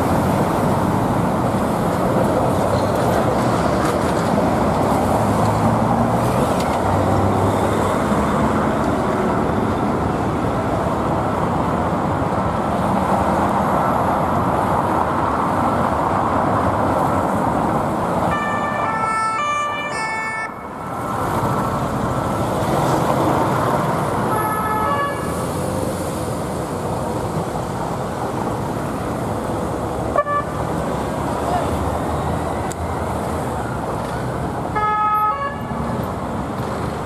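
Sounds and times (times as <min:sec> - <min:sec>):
city traffic: 0:00.0 - 0:37.0
police two-tone siren: 0:18.3 - 0:20.7.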